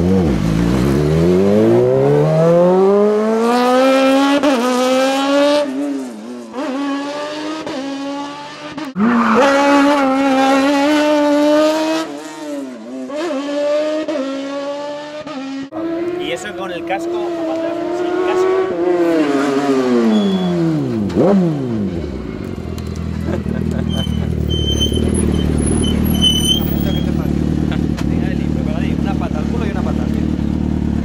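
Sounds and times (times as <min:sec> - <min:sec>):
racing vehicle motor revving: 0:06.5 - 0:22.1, 0:23.6 - 0:30.9.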